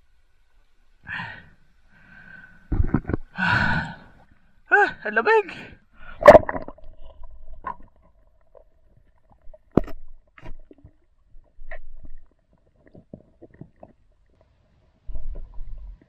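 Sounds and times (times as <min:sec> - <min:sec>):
underwater clicks and knocks: 0:02.7 - 0:03.3, 0:06.2 - 0:14.4, 0:15.1 - 0:16.0.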